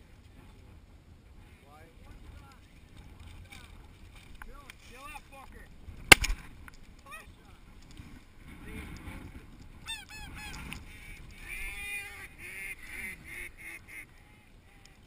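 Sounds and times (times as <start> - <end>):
geese honking: 11.3 - 15.0.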